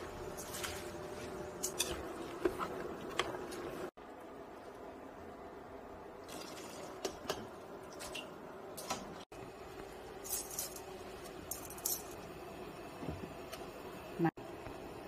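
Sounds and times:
low kitchen hum: 0.0 - 15.0
utensils clinking on metal pot: 10.2 - 12.2.

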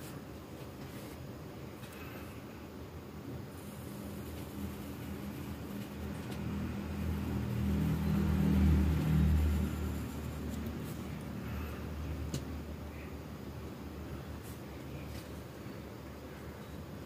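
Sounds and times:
passing vehicle engine rumble: 4.7 - 13.1.

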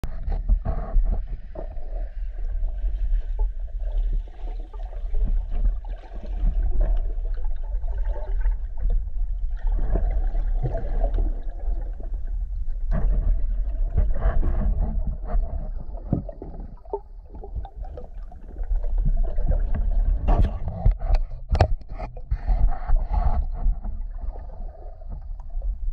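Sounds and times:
underwater low rumble: 0.0 - 25.9
scattered underwater clicks: 20.3 - 22.5.

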